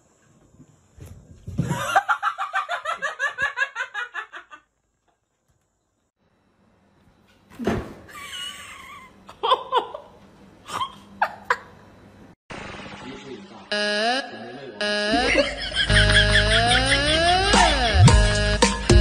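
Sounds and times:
person laughing hard: 1.6 - 4.6, 15.1 - 18.2.

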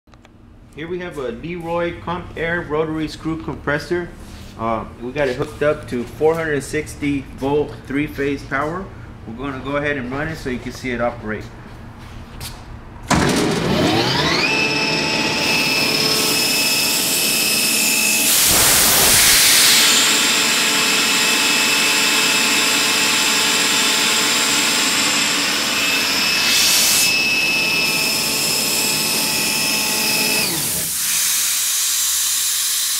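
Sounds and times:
air compressor running: 13.1 - 32.9
air hiss bursts: 18.2 - 20.0, 30.6 - 32.9.

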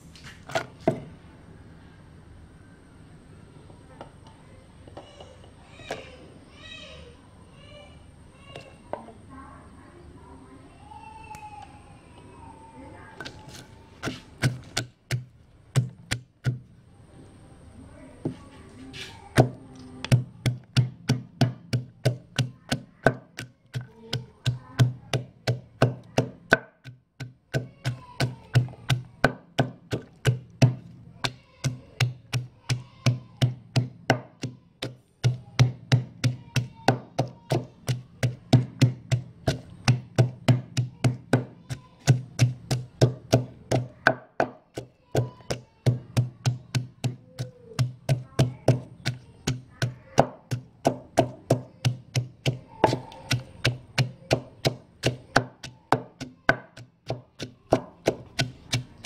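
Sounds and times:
pestle pounding in a mortar: 13.2 - 16.7, 19.3 - 59.0.

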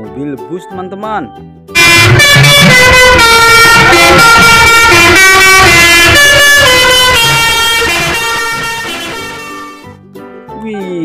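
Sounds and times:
bus musical air horn: 1.8 - 10.0.

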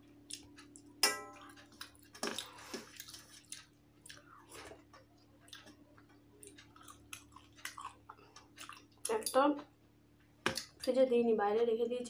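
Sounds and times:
person chewing food: 0.2 - 9.2.

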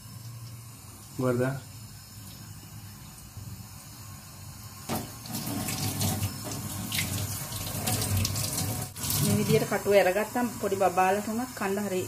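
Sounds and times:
tap water splashing into steel sink: 4.9 - 9.6.

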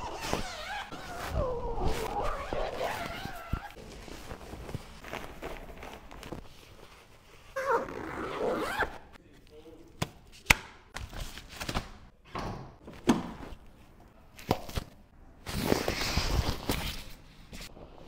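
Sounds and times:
plastic wrap crinkling: 1.7 - 7.2.

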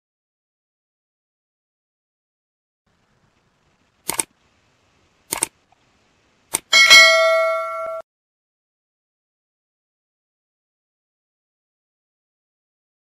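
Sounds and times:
short clicks: 4.0 - 4.3, 5.3 - 5.6, 6.5 - 6.7
bright bell ding: 6.7 - 8.0.

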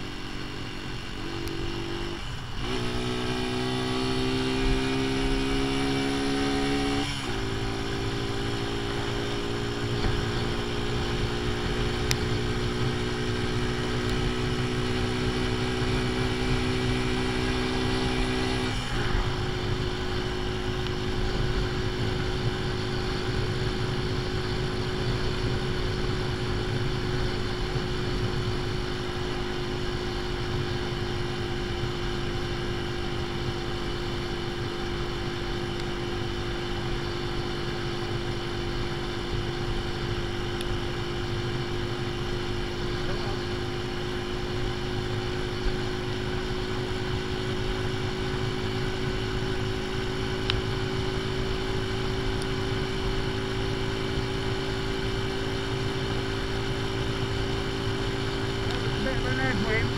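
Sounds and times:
motorcycle engine cruising: 0.0 - 59.9
wind and road noise: 0.0 - 59.9.

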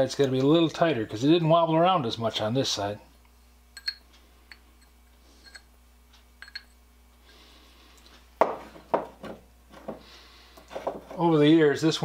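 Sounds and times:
small metallic clinks: 3.8 - 5.7, 6.4 - 6.8.

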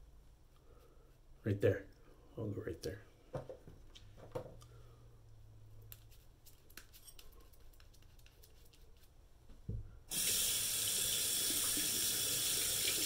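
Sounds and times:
water running into sink: 10.1 - 13.0.

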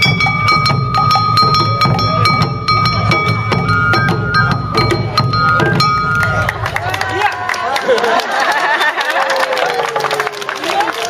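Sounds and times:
barrel drums: 0.0 - 7.2
hand gong struck rhythmically: 0.0 - 7.2.

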